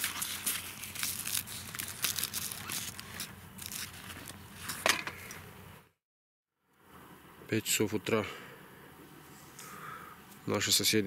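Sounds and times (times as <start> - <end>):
tent fabric rustling and crinkling: 0.0 - 4.9.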